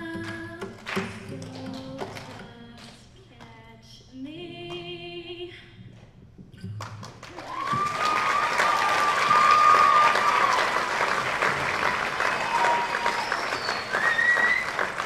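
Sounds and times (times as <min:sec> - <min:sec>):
audience applause: 0:07.2 - 0:15.0
high-pitched crowd cheer: 0:07.3 - 0:15.0.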